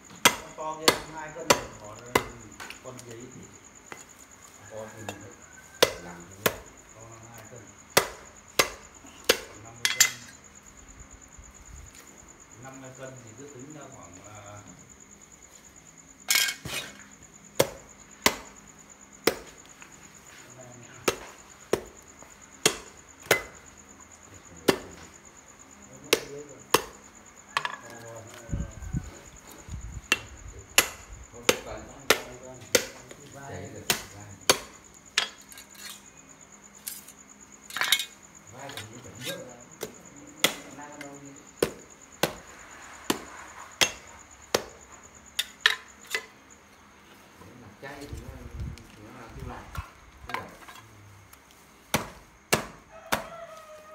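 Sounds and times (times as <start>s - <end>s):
cleaver chopping into bone: 5.8s - 6.6s, 8.0s - 9.5s, 24.7s - 24.9s, 33.9s - 34.8s, 51.9s - 53.3s
knife chopping meat: 51.9s - 53.3s.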